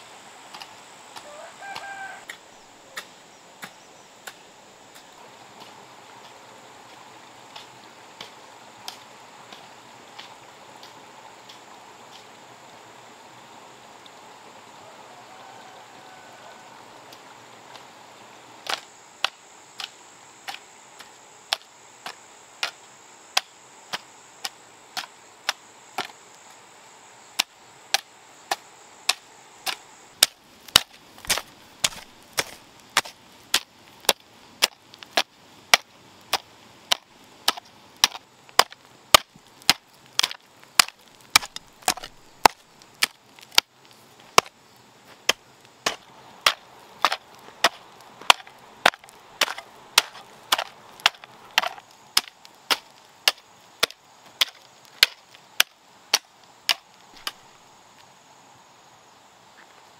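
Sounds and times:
metal hoe chopping earth: 0:18.6 - 0:26.1, 0:27.4 - 0:43.7, 0:44.3 - 0:44.6, 0:45.2 - 0:57.4.

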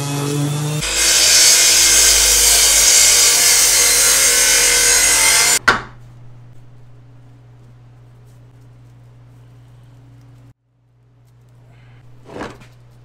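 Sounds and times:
power saw cutting wood: 0:00.0 - 0:05.6.

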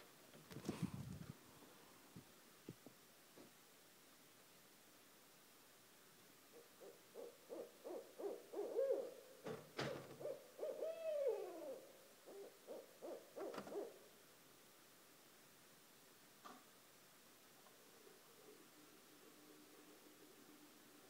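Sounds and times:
owls hooting: 0:06.5 - 0:09.2, 0:09.9 - 0:14.0.

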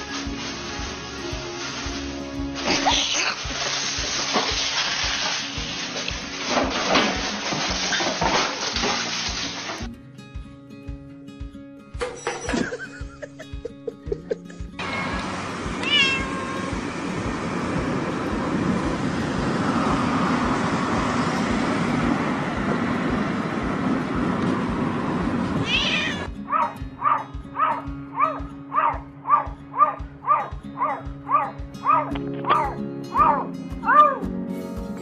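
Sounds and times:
cat meowing: 0:14.8 - 0:16.8, 0:25.6 - 0:34.3.

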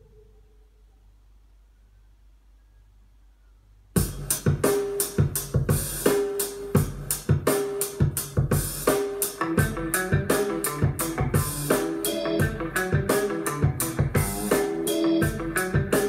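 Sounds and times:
faint low hum: 0:00.0 - 0:04.0
music with drums bass and keyboard: 0:04.0 - 0:16.0.

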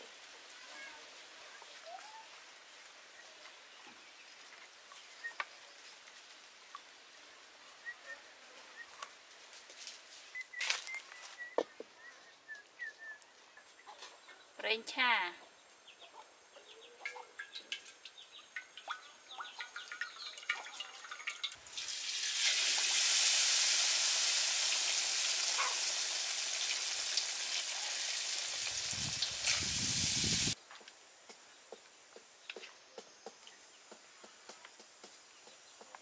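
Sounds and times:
fish deep-frying in oil: 0:17.4 - 0:30.6.

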